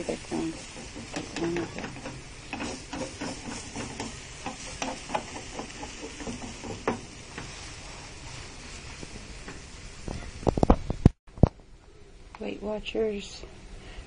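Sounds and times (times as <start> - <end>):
spatula scraping and tapping pan: 0.0 - 7.7
omelet sizzling in frying pan: 0.0 - 11.1.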